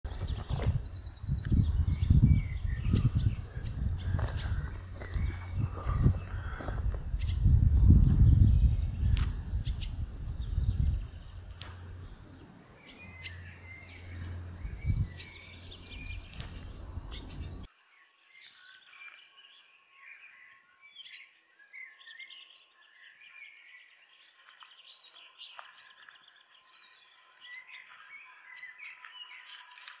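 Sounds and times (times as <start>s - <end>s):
swallows twittering chirps: 0.1s - 30.0s.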